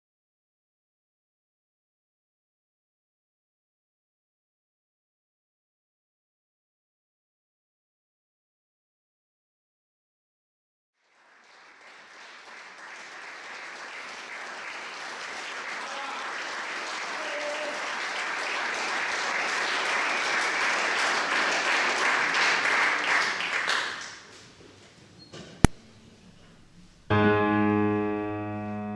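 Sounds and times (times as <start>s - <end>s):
audience applauding: 11.0s - 24.4s.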